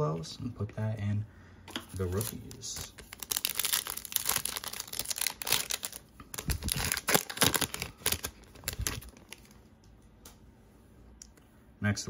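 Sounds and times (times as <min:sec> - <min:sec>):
wrapper crinkling and tearing: 0:01.9 - 0:09.6.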